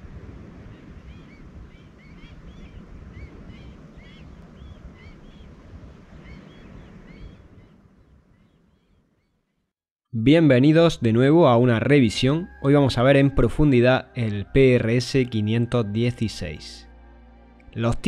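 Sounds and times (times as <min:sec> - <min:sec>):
wind buffeting microphone: 0:00.0 - 0:08.6
birds chirping: 0:00.7 - 0:09.7.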